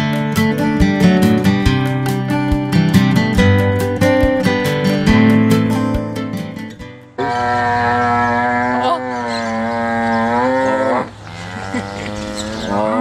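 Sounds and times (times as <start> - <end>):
cow mooing: 7.2 - 13.0.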